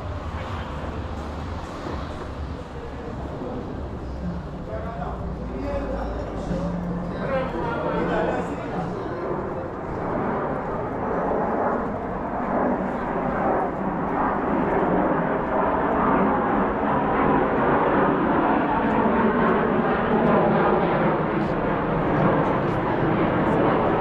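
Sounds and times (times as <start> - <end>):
steady engine rumble: 0.0 - 17.4.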